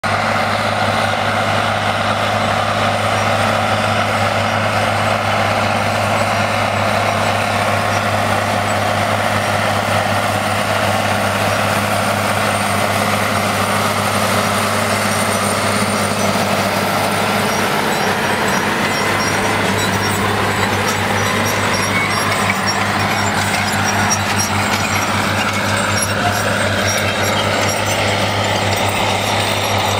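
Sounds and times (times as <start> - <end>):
tractor diesel engine under load: 0.0 - 29.9.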